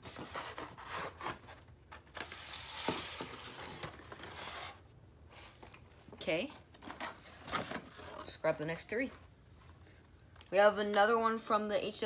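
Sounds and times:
cardboard rustling: 0:00.0 - 0:05.8, 0:06.8 - 0:08.2.

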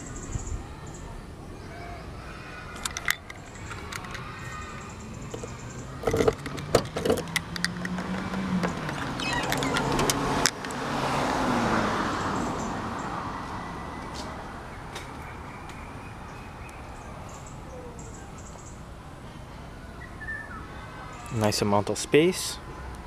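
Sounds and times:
passing car: 0:03.3 - 0:19.9.

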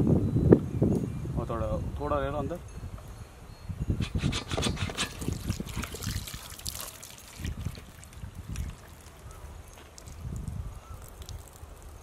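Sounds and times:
water trickling and splashing: 0:04.9 - 0:12.0.

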